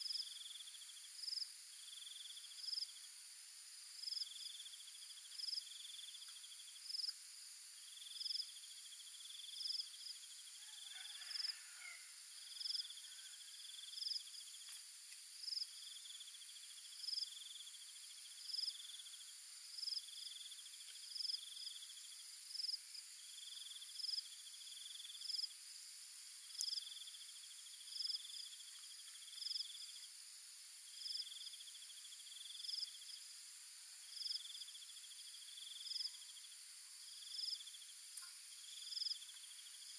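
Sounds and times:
low pulsed insect trill: 0.0s - 39.9s
short high insect chirp: 30.9s - 33.4s, 34.0s - 39.9s.

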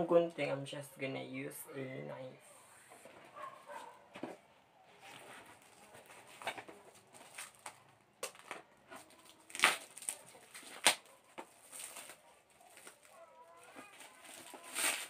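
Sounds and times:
plastic wrapping crinkling: 4.9s - 15.0s.

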